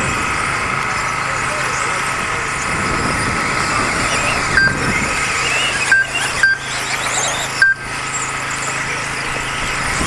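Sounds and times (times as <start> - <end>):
rc car motors whining: 0.0 - 10.0
short electronic beeps: 4.0 - 9.8.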